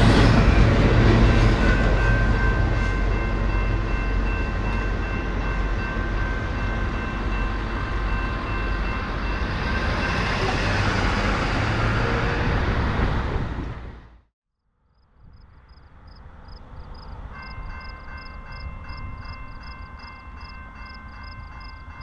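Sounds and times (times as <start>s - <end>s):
crossing bell ringing: 0.0s - 12.6s, 17.0s - 22.0s
freight train rumble: 0.0s - 14.3s, 15.2s - 22.0s.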